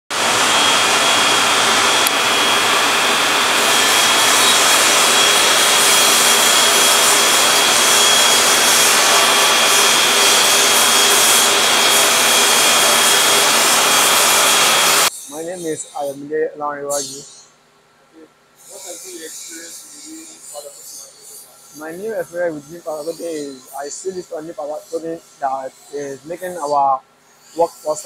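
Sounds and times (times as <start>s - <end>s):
extraction fan rushing: 0.1s - 16.8s
thin high whine: 0.1s - 17.5s, 18.2s - 28.0s
compressed-air spray gun: 0.2s - 15.6s.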